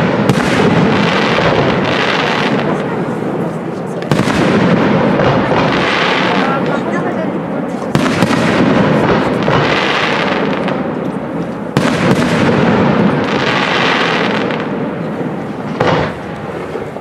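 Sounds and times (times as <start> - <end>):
crackle of firework stars: 7.6 - 17.0
firework shells bursting: 7.8 - 17.0.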